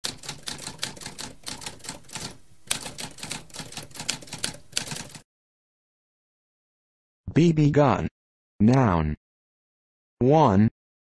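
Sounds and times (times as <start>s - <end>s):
typewriter keystrokes: 0.0s - 5.2s.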